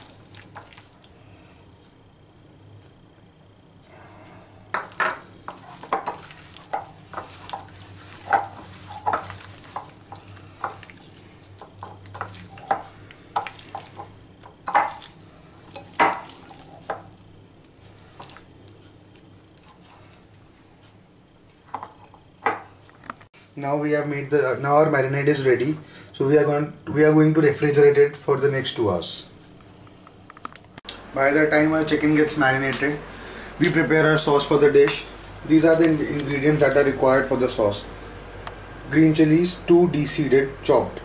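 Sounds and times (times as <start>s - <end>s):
hand squelching marinade: 0.0s - 1.2s, 4.3s - 20.6s.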